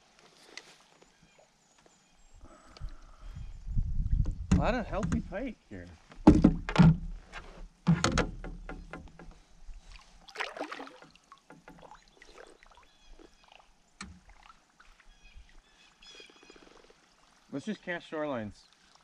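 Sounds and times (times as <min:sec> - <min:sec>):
water sloshing: 0:08.4 - 0:19.0
fish splashing in water: 0:09.9 - 0:17.5.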